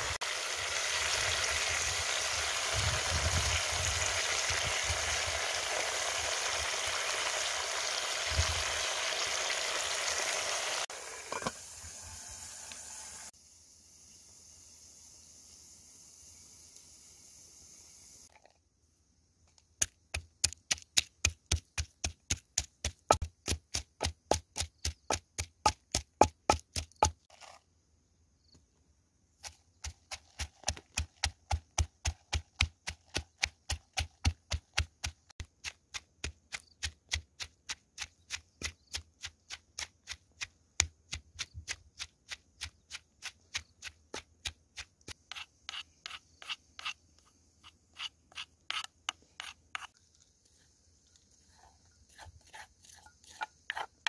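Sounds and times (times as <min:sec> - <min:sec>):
wooden pestle pounding in mortar: 0:19.8 - 0:27.2, 0:29.8 - 0:40.2.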